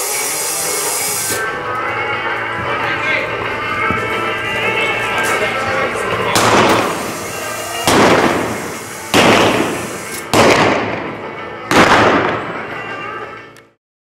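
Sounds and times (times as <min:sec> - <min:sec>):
revolver shots echoing: 0:06.3 - 0:12.6.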